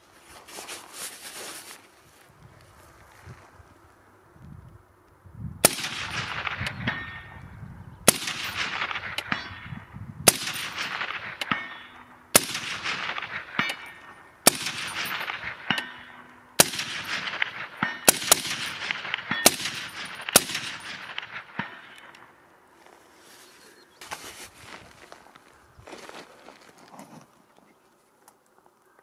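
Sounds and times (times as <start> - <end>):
suppressed rifle shots: 5.6 - 7.4, 8.1 - 22.3.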